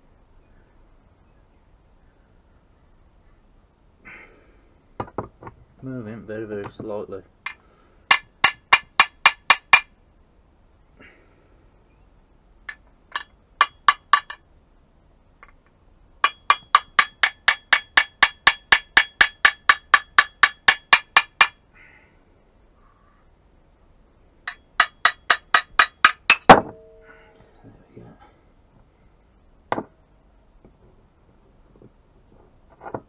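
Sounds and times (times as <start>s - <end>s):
hammer tapping on metal: 7.5s - 9.9s, 12.7s - 14.4s, 16.2s - 21.6s, 24.5s - 27.0s
heavy ringing hammer blow: 26.0s - 27.6s.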